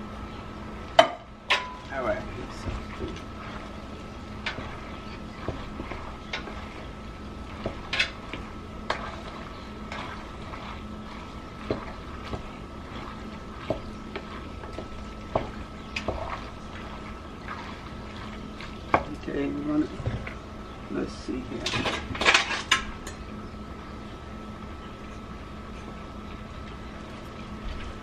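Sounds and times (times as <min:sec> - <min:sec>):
faint steady hum: 0:00.0 - 0:28.0
wooden spatula stirring thick sauce: 0:01.9 - 0:20.5
spatula knocking against pot: 0:13.6 - 0:16.4.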